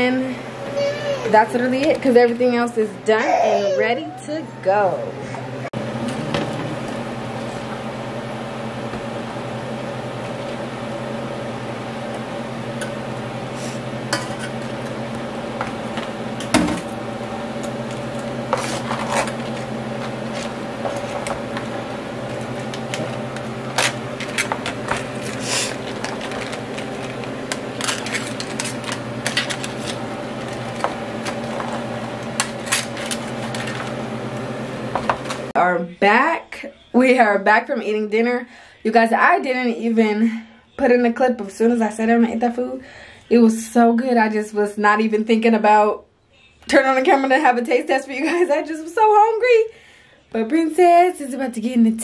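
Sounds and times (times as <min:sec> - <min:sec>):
steady low hum: 0:01.3 - 0:36.1
metal spoon scraping shells: 0:27.7 - 0:30.0.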